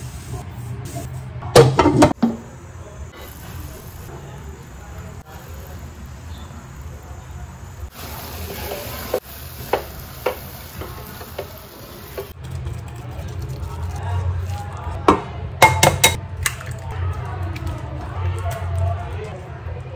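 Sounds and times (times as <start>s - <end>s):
hissing sizzle: 2.4s - 12.4s
spatula tapping a pan: 8.8s - 12.3s.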